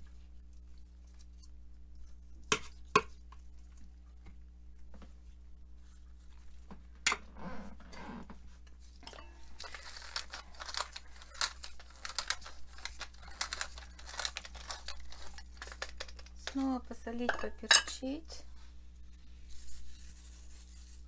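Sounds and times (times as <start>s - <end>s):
rustling handling sounds: 8.4s - 17.0s
pepper mill grinding: 9.6s - 16.7s.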